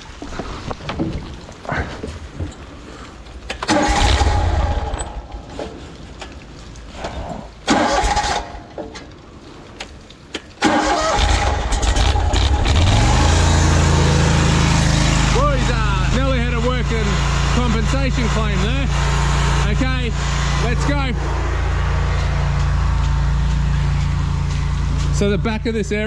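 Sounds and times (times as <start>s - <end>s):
engine starting and running: 3.5s - 9.1s, 10.3s - 26.0s.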